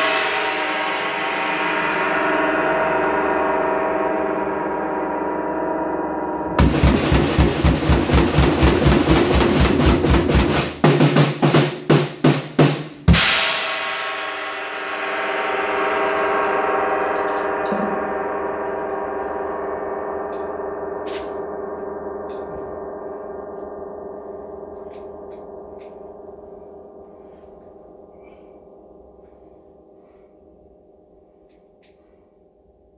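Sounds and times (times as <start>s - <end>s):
cymbal crash: 0.0s - 32.4s
drum kit playing: 6.6s - 13.9s, 16.3s - 19.6s
gong ringing: 13.6s - 30.3s.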